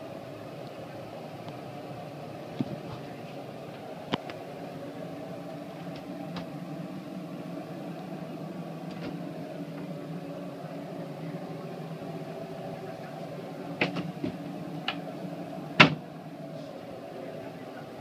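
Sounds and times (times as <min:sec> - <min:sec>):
motor humming: 0:00.0 - 0:18.0
cabinet door click: 0:15.8 - 0:16.0.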